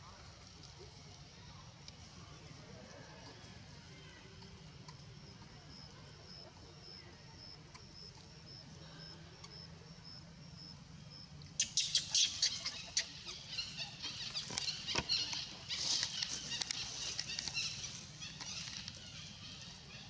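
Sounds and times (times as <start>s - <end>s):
leaves and twigs rustling crackling: 11.9s - 20.0s.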